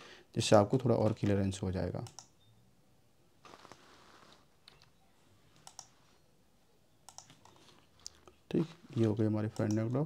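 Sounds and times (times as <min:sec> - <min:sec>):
mouse and keyboard clicks: 0:04.6 - 0:06.0, 0:07.1 - 0:08.2.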